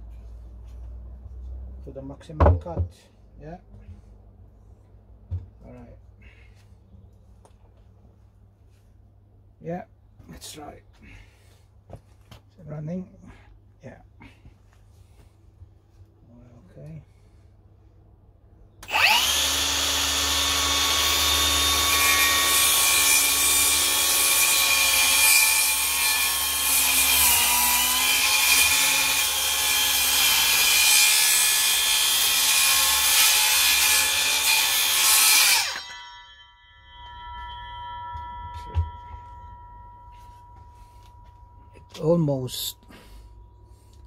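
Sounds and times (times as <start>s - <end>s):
circular saw cutting timber: 18.8s - 36.5s.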